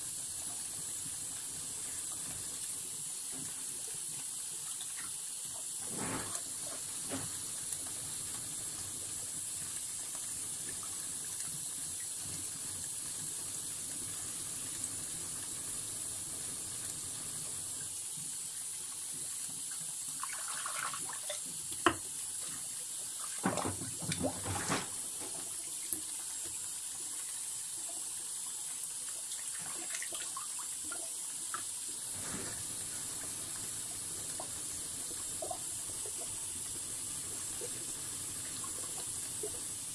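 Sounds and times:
tap water running into sink: 0.0s - 39.9s.

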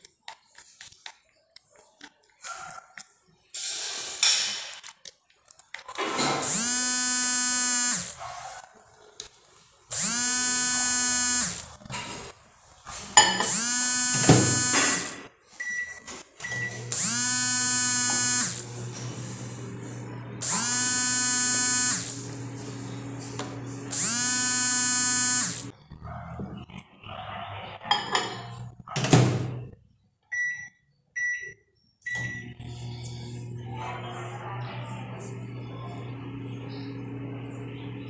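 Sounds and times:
harsh buzz: 6.2s - 8.2s, 9.9s - 11.8s, 13.2s - 15.3s, 16.7s - 25.8s
microwave oven humming: 16.5s - 25.7s, 32.1s - 38.0s
keypad beeps: 30.3s - 32.4s.

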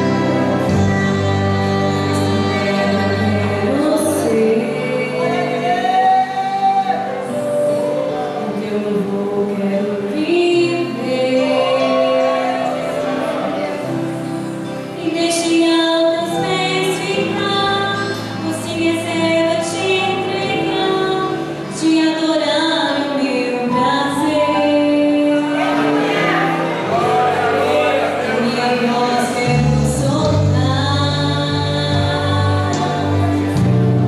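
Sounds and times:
women singing a hymn: 0.0s - 7.4s, 8.0s - 14.2s, 15.0s - 34.0s.

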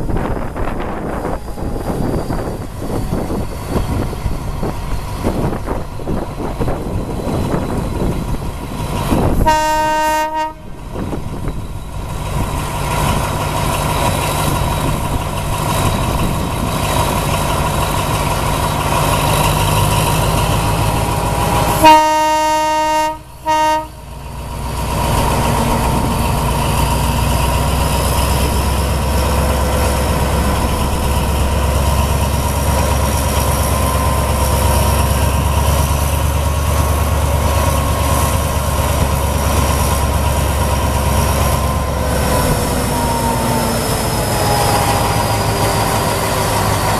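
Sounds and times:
locomotive engine running: 0.0s - 46.9s
locomotive horn blasts: 9.3s - 11.0s, 21.6s - 24.2s.

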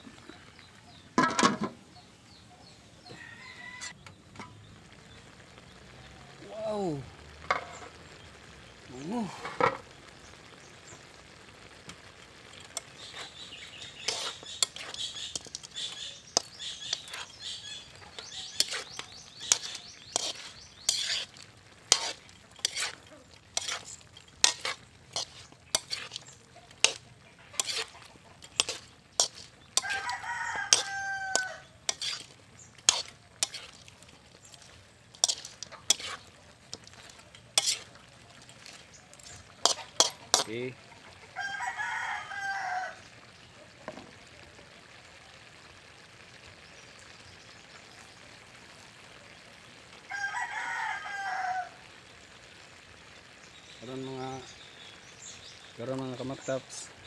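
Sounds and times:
rooster crowing: 3.0s - 4.0s, 29.8s - 31.7s, 41.3s - 43.1s, 50.1s - 51.9s
metal ladle scraping a wok: 7.4s - 8.0s, 12.4s - 40.6s.

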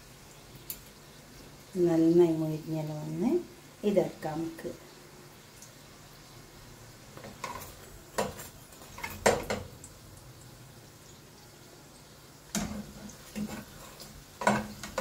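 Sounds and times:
metal spatula scraping frying pan: 7.2s - 9.6s, 12.6s - 15.0s.

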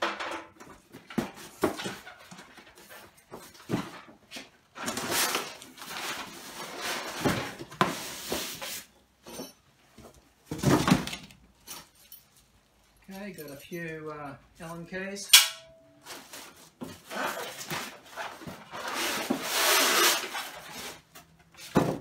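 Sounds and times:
cardboard and foam scraping: 16.1s - 21.1s.

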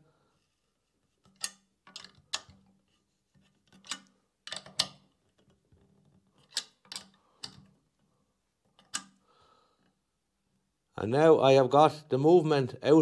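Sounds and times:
metallic clicks and knocks: 1.2s - 2.8s, 3.6s - 7.8s, 8.6s - 9.2s.

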